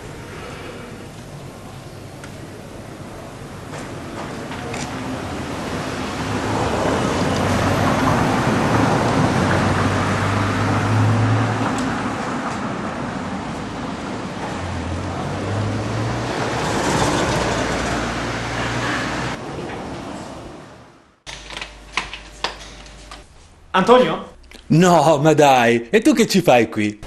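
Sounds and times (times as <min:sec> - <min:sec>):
road traffic passing: 0:00.0 - 0:21.2.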